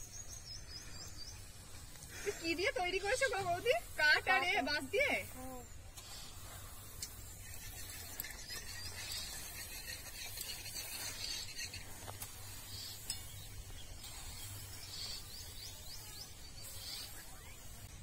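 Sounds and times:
rake scraping grain on tarpaulin: 0:01.5 - 0:18.0
grain ticking: 0:05.9 - 0:15.3.

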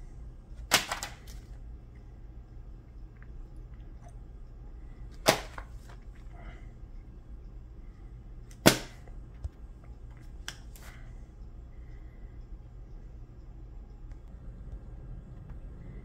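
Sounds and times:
plastic-sleeved boards slapping: 0:00.6 - 0:01.4, 0:05.2 - 0:06.0, 0:08.5 - 0:09.1.

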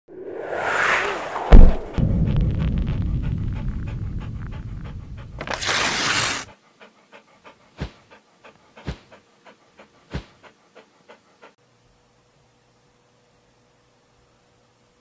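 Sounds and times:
low rumble with loud whoosh: 0:00.1 - 0:05.4
dog panting: 0:02.9 - 0:11.6.

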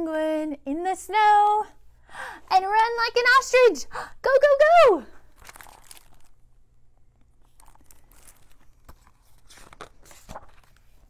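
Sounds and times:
book pages rustling: 0:05.3 - 0:06.4, 0:07.2 - 0:11.0.

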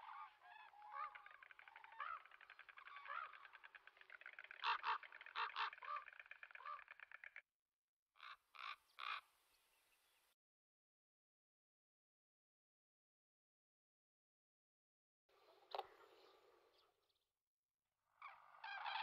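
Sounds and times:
cranes calling: 0:00.0 - 0:07.4, 0:08.2 - 0:09.3, 0:18.1 - 0:19.0.

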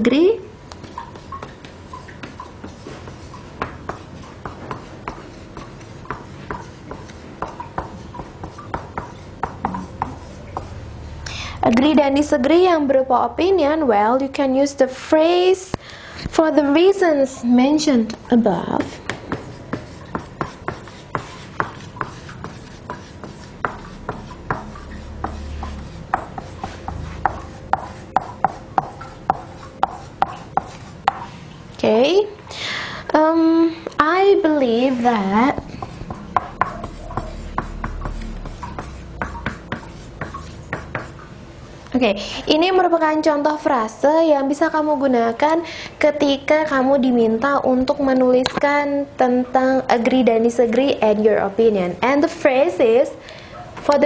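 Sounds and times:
marker squeaking on whiteboard: 0:00.8 - 0:10.8, 0:18.8 - 0:31.0, 0:34.9 - 0:41.2.

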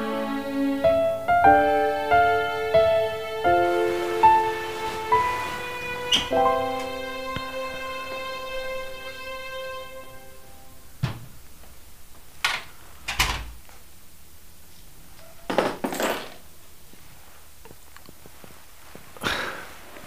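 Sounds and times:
soft music: 0:00.0 - 0:11.0
knocks and thuds: 0:11.0 - 0:11.4.

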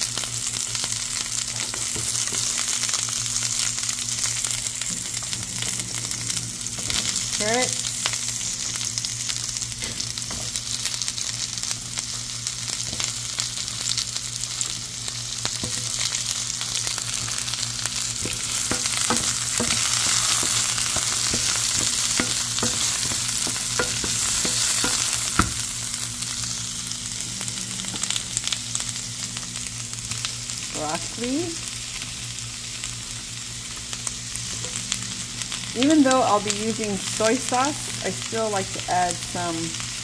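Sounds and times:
vegetables sizzling in a skillet: 0:00.0 - 0:40.0
spatula scraping and tapping pan: 0:18.2 - 0:25.6.

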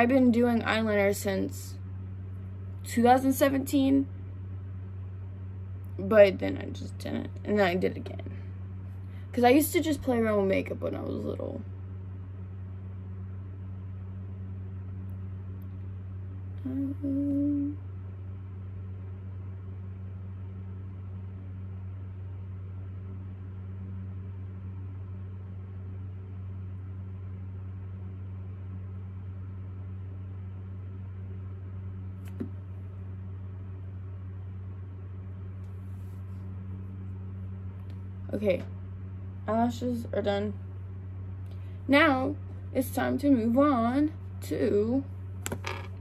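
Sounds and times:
steady low hum: 0:00.0 - 0:46.0
woman humming a note: 0:16.6 - 0:17.8.

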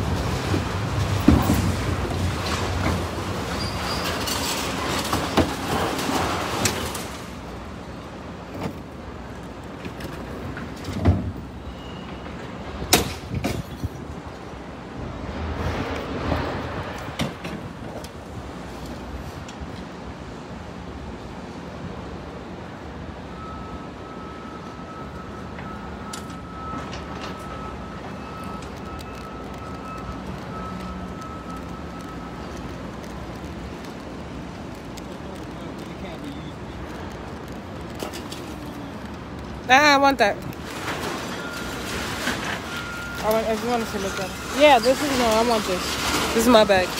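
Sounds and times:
knocks and thuds of junk: 0:00.2 - 0:03.3, 0:12.9 - 0:14.0.

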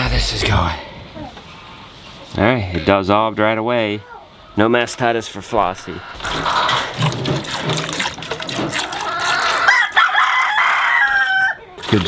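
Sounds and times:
chickens clucking: 0:04.4 - 0:12.0
milk squirting into a pail: 0:06.2 - 0:09.7
rooster crowing: 0:09.2 - 0:11.6.

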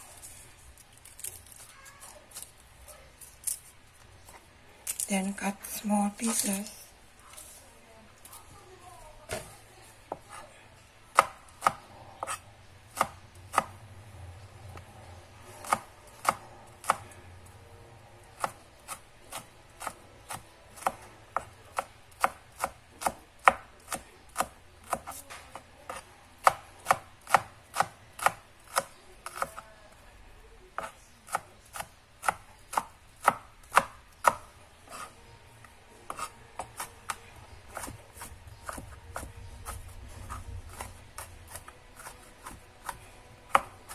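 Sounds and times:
knife chopping on plastic board: 0:11.1 - 0:13.8, 0:15.6 - 0:17.1, 0:18.4 - 0:29.6, 0:30.8 - 0:35.1, 0:36.1 - 0:43.9.

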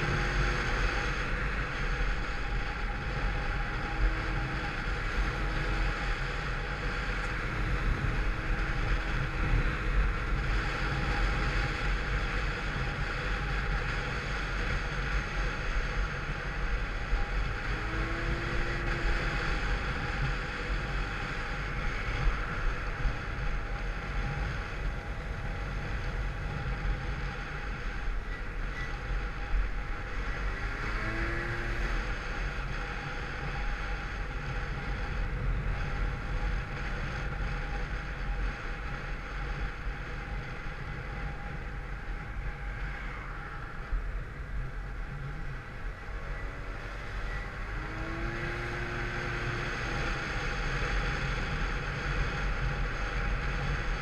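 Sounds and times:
wind noise on microphone: 0:00.0 - 0:54.0.

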